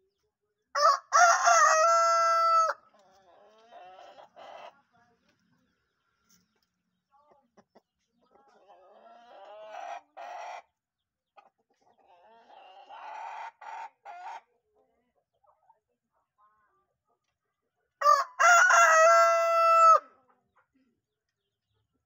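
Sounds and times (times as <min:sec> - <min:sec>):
rooster crowing: 0:00.8 - 0:02.8, 0:18.0 - 0:20.0.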